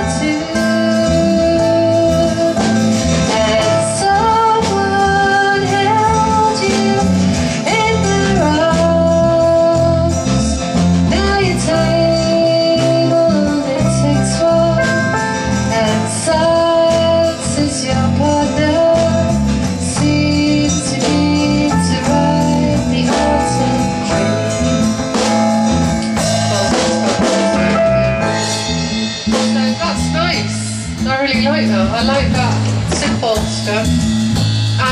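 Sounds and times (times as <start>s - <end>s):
woman singing: 0.0s - 24.7s
acoustic guitar strumming: 20.2s - 34.9s.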